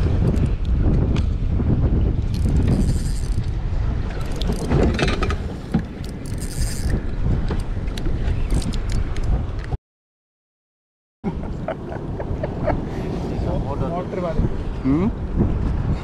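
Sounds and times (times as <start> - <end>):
wind rumble on microphone: 0.0 - 9.8, 11.3 - 16.0
fishing reel gears whirring: 2.3 - 3.6, 6.0 - 7.0.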